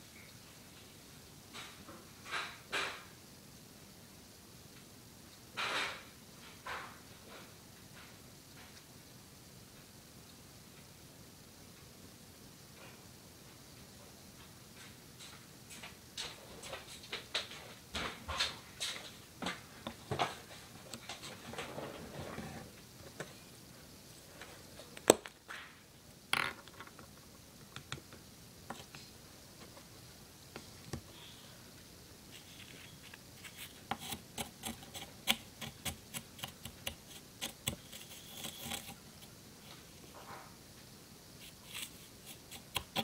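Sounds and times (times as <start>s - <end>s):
craft stick scraping glue in cups: 32.3s - 39.4s, 41.4s - 43.0s.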